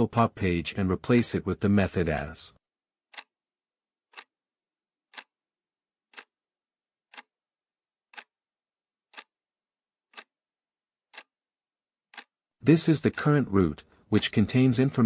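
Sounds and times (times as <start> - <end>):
quiet sharp ticks: 3.1 - 3.3, 4.1 - 4.3, 5.1 - 5.3, 6.1 - 6.3, 7.1 - 7.3, 8.1 - 8.3, 9.1 - 9.3, 10.1 - 10.3, 11.1 - 11.3, 12.1 - 14.0.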